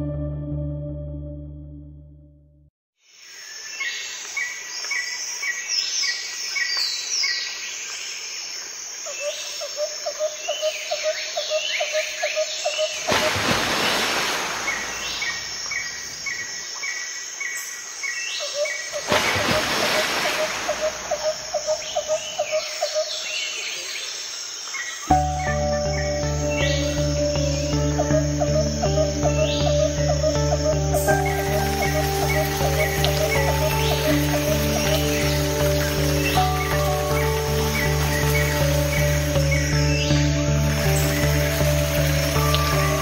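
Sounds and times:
pulsing insect or frog call: 9.0 - 17.6, 18.4 - 23.3, 25.0 - 43.0
birds chirping: 9.2 - 43.0.

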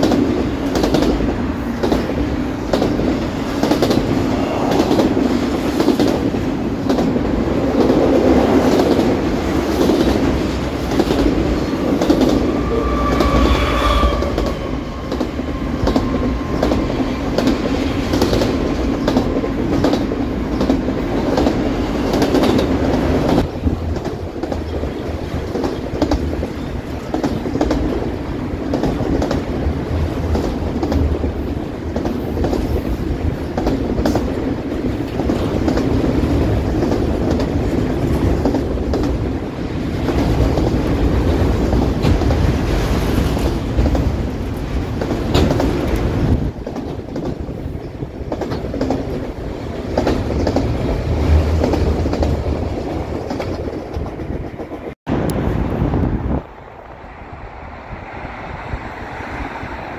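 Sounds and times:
train wheels rumbling on rails: 0.0 - 59.9
wheels clacking over rail joints: 14.2 - 55.0.

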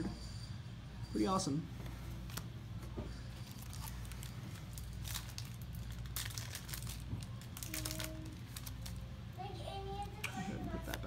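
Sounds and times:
foil wrapper crinkling and tearing: 3.4 - 9.1.

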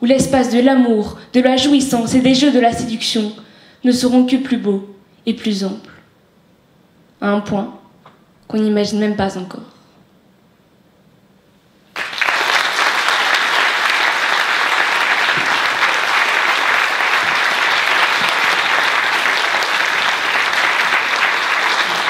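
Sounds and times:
audience applauding: 11.9 - 22.0.

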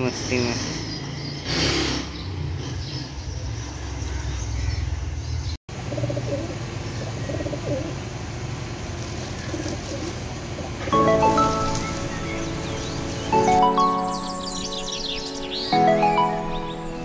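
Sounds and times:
pigeons cooing: 5.8 - 8.1, 9.0 - 11.0
background music: 10.9 - 17.0.

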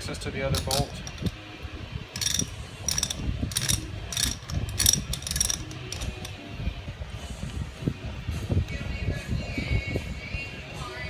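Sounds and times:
ratchet wrench clicking: 0.5 - 1.4, 2.2 - 6.4.

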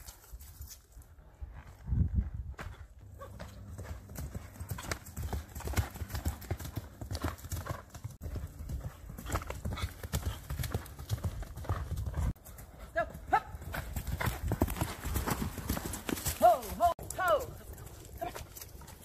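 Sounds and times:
horse hooves cantering on dirt: 0.0 - 19.0.

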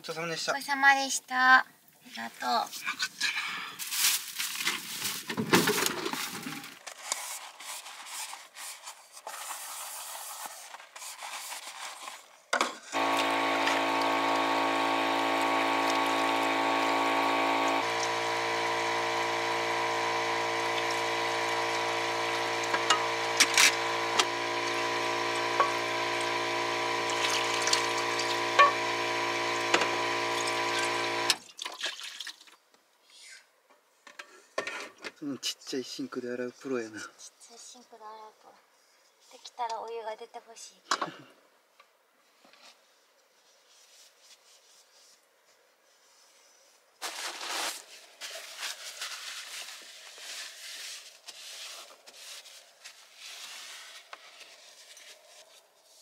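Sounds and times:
droning hum: 13.0 - 31.3
running water: 13.0 - 32.5.

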